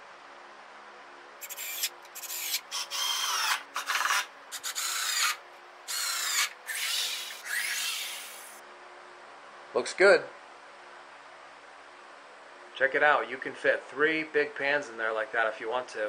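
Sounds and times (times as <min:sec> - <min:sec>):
cordless drill driving screws: 0:01.4 - 0:08.6.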